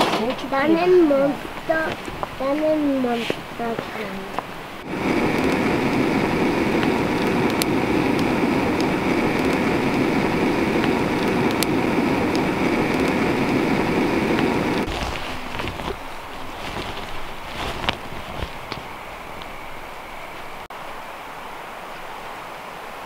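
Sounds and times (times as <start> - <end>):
fire crackles and pops: 0.0 - 20.7
campfire flames rushing: 0.0 - 23.0
scattered clicks: 4.4 - 14.9.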